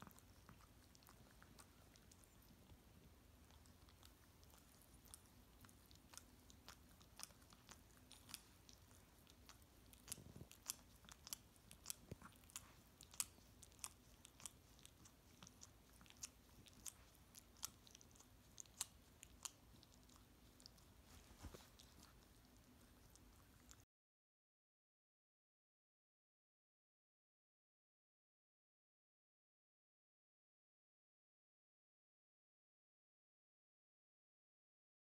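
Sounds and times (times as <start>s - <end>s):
faint steady hum: 0.0s - 23.8s.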